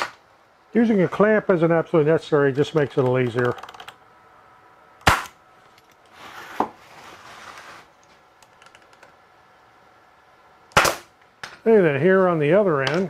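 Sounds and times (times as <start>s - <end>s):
handling noise with clicks: 5.6s - 6.2s, 7.5s - 9.2s.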